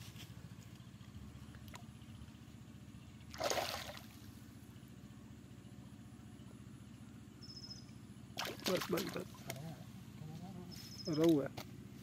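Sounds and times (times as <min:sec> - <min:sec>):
steady low hum: 0:00.0 - 0:12.0
river water splash: 0:03.3 - 0:04.2, 0:08.4 - 0:09.5.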